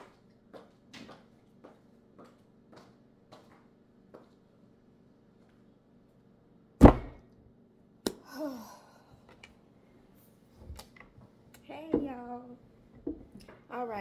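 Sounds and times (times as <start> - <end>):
handbag thumping on wooden table: 6.8 - 7.2.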